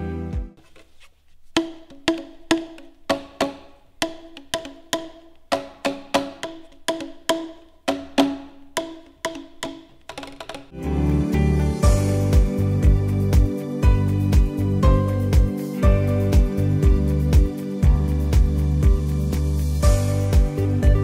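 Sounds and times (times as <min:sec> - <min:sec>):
plastic percussion tubes struck: 0:01.5 - 0:10.8.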